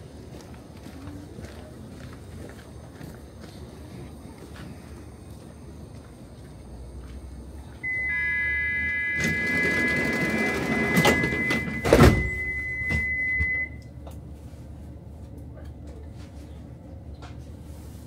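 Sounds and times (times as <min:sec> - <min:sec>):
high warning tone: 0:07.8 - 0:13.9
train doors sliding shut: 0:08.1 - 0:13.6.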